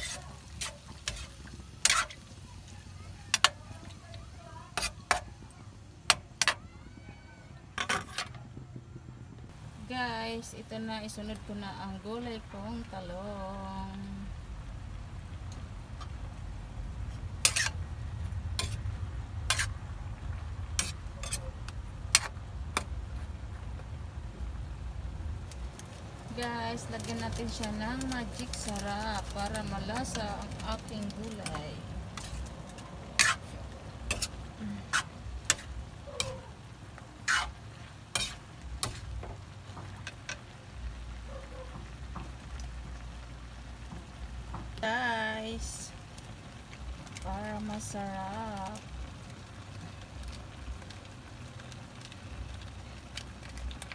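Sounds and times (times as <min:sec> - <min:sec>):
utensils clacking on metal wok: 0:00.0 - 0:02.2, 0:03.3 - 0:04.0, 0:04.7 - 0:05.4, 0:17.4 - 0:17.8, 0:18.6 - 0:19.7, 0:20.7 - 0:22.9, 0:27.0 - 0:36.4, 0:37.2 - 0:40.4
faint sizzling of frying food: 0:00.0 - 0:53.9
low steady rumble: 0:00.0 - 0:53.9.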